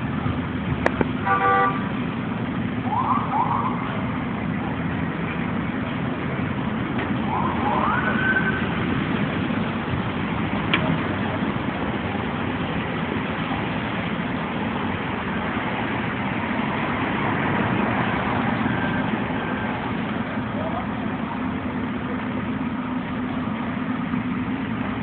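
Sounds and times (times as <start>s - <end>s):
street traffic and engines: 0.0s - 25.0s
siren whoop: 2.8s - 4.0s, 7.2s - 8.8s.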